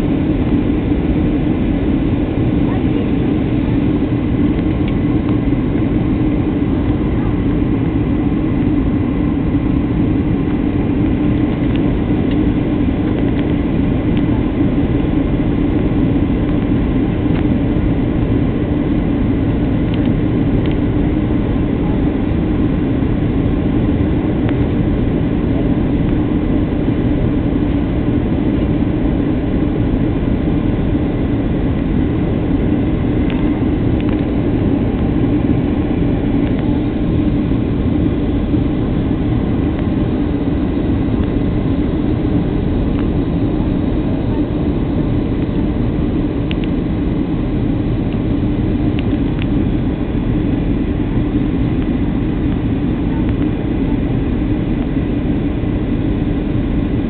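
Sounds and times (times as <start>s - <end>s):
jet engine drone: 0.0s - 57.0s.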